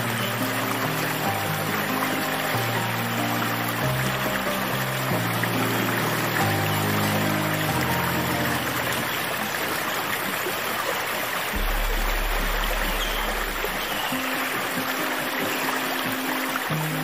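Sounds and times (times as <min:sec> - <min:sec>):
soft low music tones: 0:00.0 - 0:17.0
stream water rushing: 0:00.0 - 0:17.0
deep low drone: 0:11.6 - 0:14.2.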